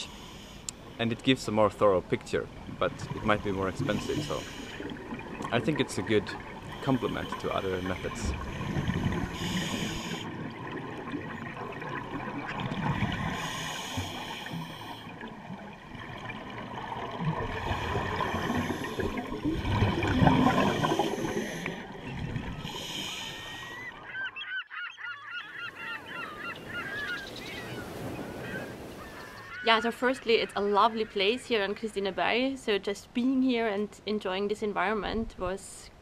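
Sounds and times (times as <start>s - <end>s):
regulator breathing underwater: 0.0s - 0.9s, 3.4s - 5.2s, 6.6s - 10.6s, 13.1s - 15.3s, 17.5s - 23.9s
birds chirping: 1.0s - 10.2s, 20.6s - 32.4s
exhaled bubbles hissing: 2.9s - 5.6s, 6.3s - 23.9s.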